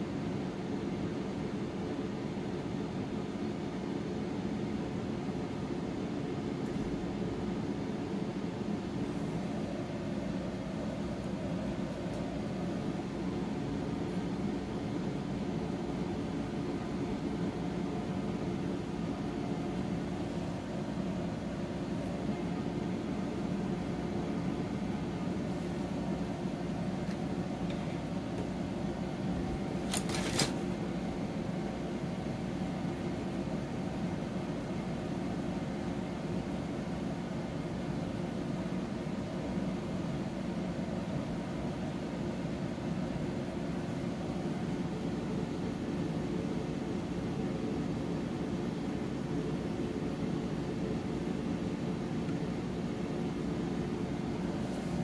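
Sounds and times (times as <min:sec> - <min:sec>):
low machine hum: 0:00.0 - 0:55.0.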